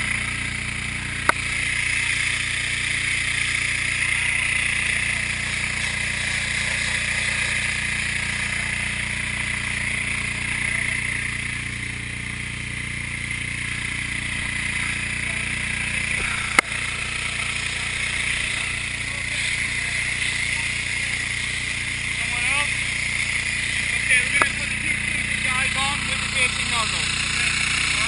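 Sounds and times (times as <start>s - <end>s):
fire hose spraying water: 0.0s - 28.0s
small engine running: 0.0s - 28.0s.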